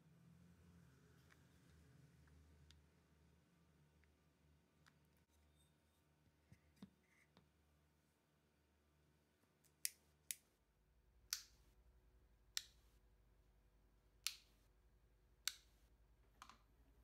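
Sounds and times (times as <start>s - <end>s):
lamp cord switch clicking: 15.4s - 15.7s.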